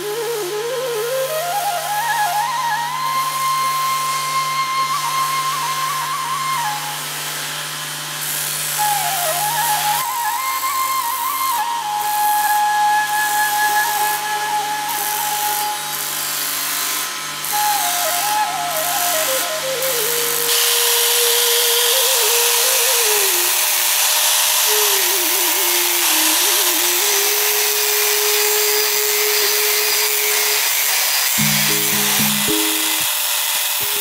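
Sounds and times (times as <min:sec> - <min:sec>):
instrumental folk music with flute: 0:00.0 - 0:34.0
angle grinder grinding steel: 0:03.4 - 0:34.0
grinding wheel humming: 0:31.2 - 0:34.0.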